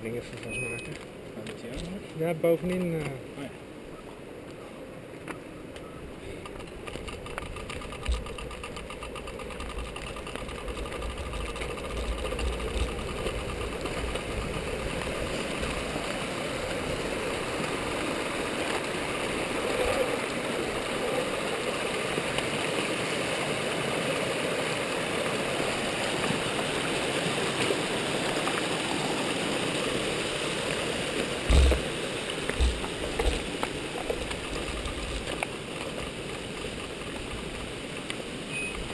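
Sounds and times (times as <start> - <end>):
running water: 6.2 - 38.9
low buffeting thumps: 31.5 - 31.9, 32.6 - 33.4.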